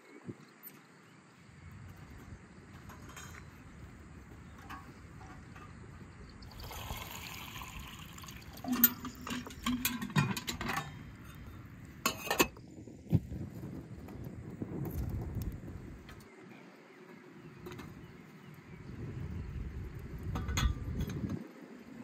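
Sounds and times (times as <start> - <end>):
sharp metallic knocks and clinks: 2.8 - 3.6, 8.6 - 11.5
water pouring into metal urn: 6.4 - 10.9.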